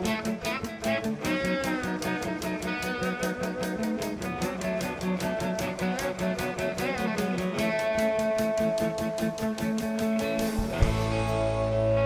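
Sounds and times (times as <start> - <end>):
electric guitar lead: 0.0 - 12.0
rock band playing: 0.0 - 12.0.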